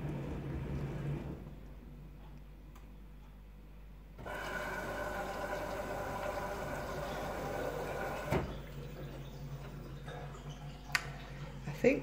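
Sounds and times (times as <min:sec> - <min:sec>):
washing machine water rushing: 0:00.0 - 0:01.6, 0:04.2 - 0:12.0.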